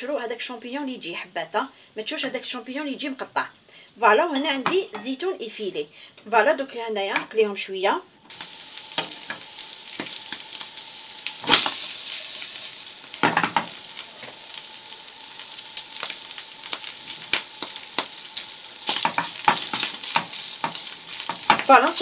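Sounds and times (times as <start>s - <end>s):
food sizzling in a frying pan: 8.3s - 22.0s.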